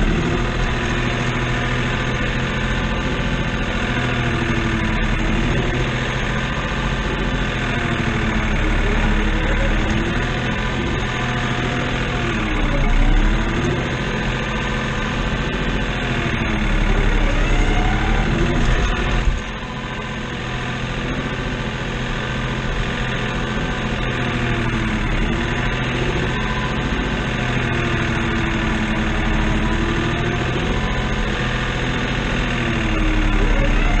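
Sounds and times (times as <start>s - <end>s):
tractor diesel engine running: 0.0s - 34.0s
whine changing in pitch: 16.7s - 20.4s, 33.0s - 34.0s.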